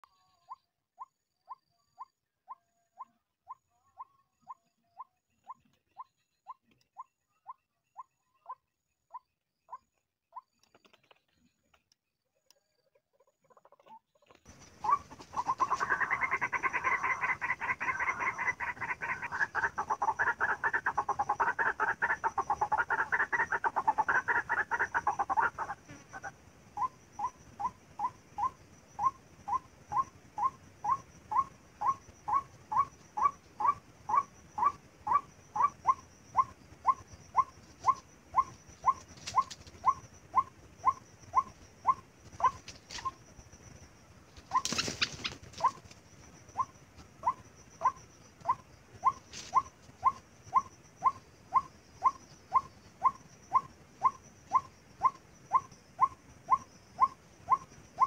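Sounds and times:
waterhen calling: 13.2 - 43.2, 44.4 - 58.0.

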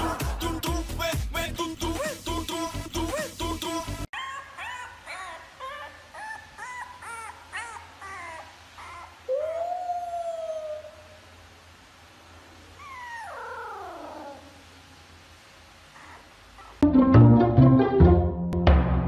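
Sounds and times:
puppy whimpering yelps: 4.2 - 11.2, 12.8 - 14.6, 16.0 - 16.8
puppy howling: 4.2 - 11.3, 12.8 - 14.6
puppy whining: 4.2 - 11.3, 12.8 - 14.6, 15.9 - 16.8.

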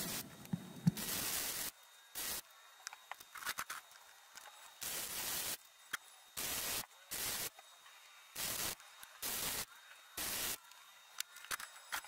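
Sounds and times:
welding arc crackling: 0.0 - 2.5, 4.8 - 5.7, 6.4 - 7.6, 8.4 - 10.7.

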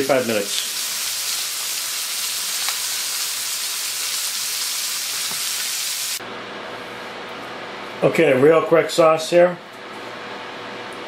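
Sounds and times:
chicken sizzling in frying pan: 0.0 - 6.2.

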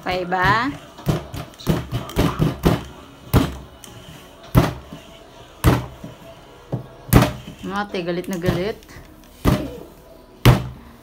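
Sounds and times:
rolling pin thudding on tabletop: 4.5 - 4.9, 5.6 - 6.1, 6.7 - 7.5.

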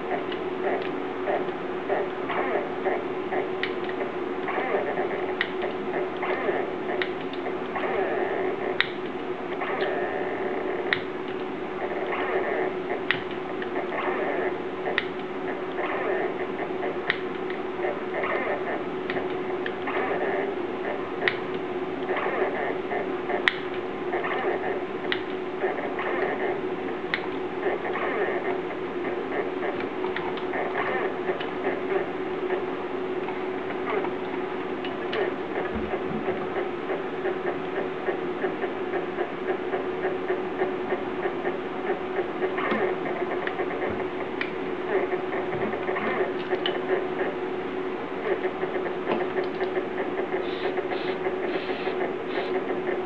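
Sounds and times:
motor hum: 0.0 - 53.0.

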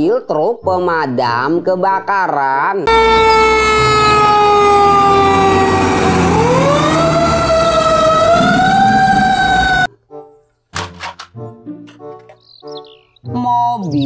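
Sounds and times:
fire engine siren wailing: 2.9 - 9.9
low engine rumble: 2.9 - 9.9.

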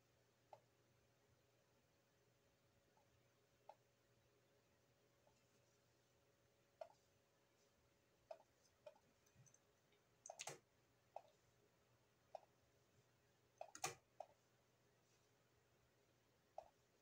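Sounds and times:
computer mouse clicking: 10.2 - 10.6, 13.6 - 14.3.

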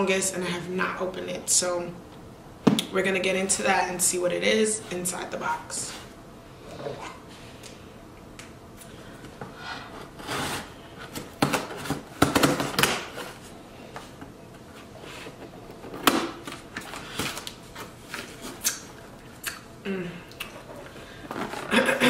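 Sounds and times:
cardboard box scraping and ripping: 10.1 - 10.8.

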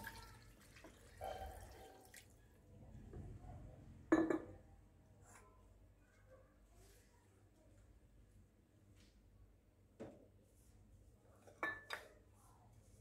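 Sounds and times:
water pouring onto meat: 0.0 - 2.4.

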